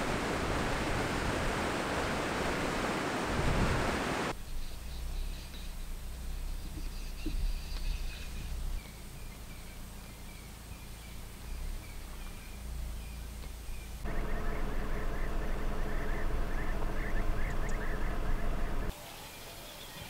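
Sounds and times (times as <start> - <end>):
wind rumble on microphone: 0.0 - 4.3, 6.6 - 8.8
bird calls chattering: 4.4 - 18.9.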